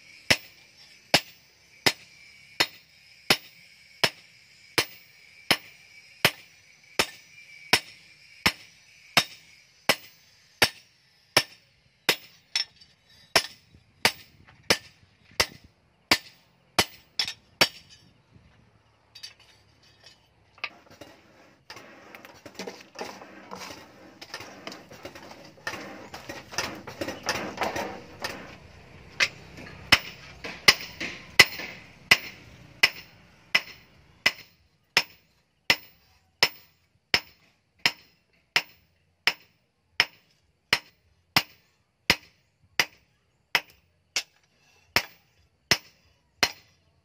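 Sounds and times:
hammer striking steel on anvil: 1.2 - 18.0, 24.3 - 43.0, 45.0 - 46.7.

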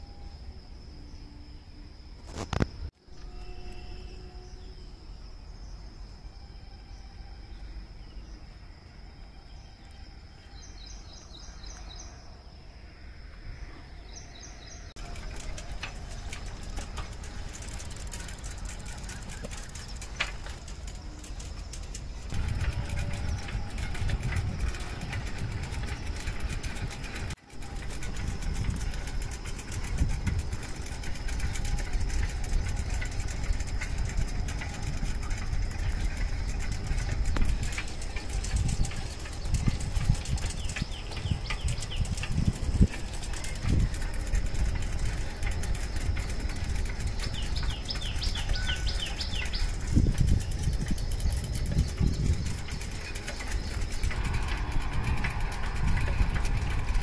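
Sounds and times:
insect drone: 0.0 - 57.0
heavy low rumble: 15.0 - 57.0
bird chirps: 45.0 - 55.7.

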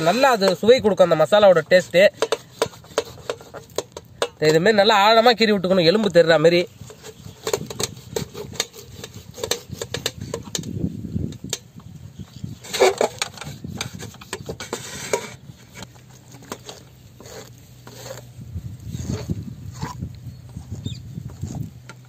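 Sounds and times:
blade scraping a steel tray: 0.0 - 4.7, 6.6 - 10.7, 12.4 - 21.7
knife cutting meat: 2.1 - 4.0, 7.0 - 10.4.

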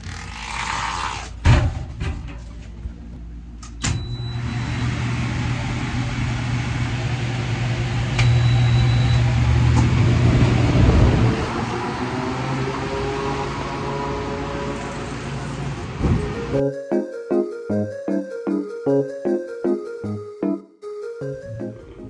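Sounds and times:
electric hum and fan air rush: 4.5 - 12.2.

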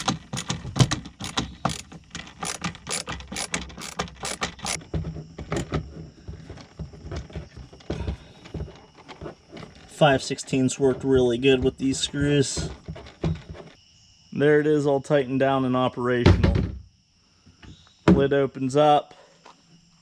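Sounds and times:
screwdriver ratchet clicks: 0.0 - 4.8.

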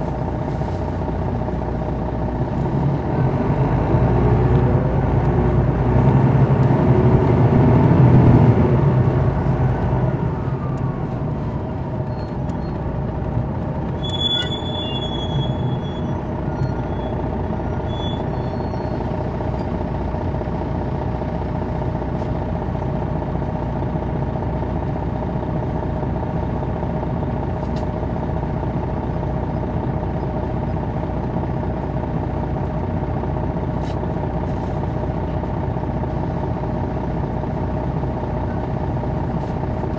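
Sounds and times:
bus diesel engine idling: 0.0 - 39.9
high squeak: 14.0 - 17.2, 17.8 - 19.0.

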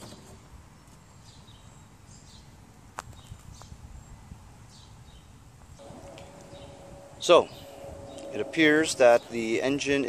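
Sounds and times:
birds chirping: 4.7 - 10.0.

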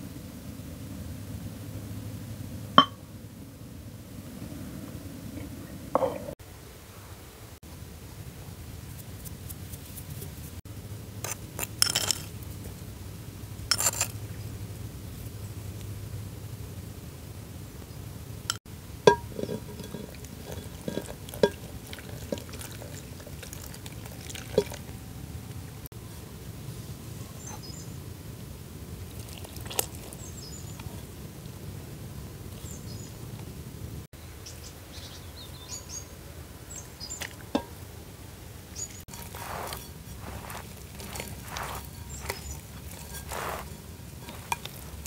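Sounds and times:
hand mixing dough: 19.0 - 25.9, 29.0 - 31.2, 39.0 - 45.0
spoon striking ceramic bowl: 19.1 - 23.0, 39.1 - 45.0
water pouring into flour: 19.4 - 24.9, 29.1 - 30.2.

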